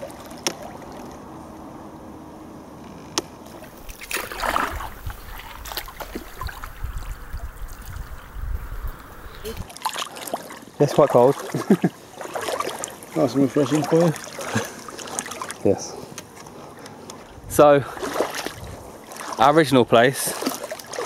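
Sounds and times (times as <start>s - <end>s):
water splashing and trickling: 0.0s - 1.4s, 3.5s - 21.0s
loud splash: 3.6s - 13.0s, 17.9s - 19.4s
low rumble: 3.7s - 9.7s.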